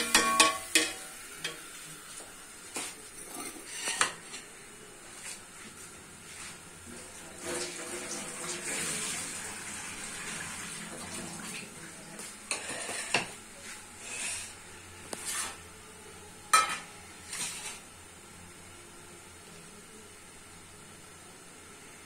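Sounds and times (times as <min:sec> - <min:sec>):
dishes clinking: 0:00.0 - 0:01.6, 0:03.2 - 0:04.2, 0:16.5 - 0:16.9
water running from tap: 0:07.2 - 0:12.1.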